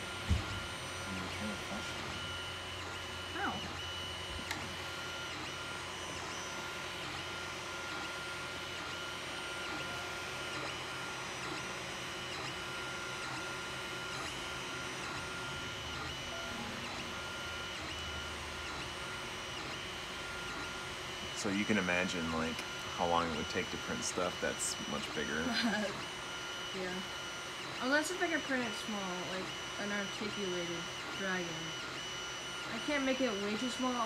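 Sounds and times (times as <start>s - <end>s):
stepper motors whining: 0.0s - 34.0s.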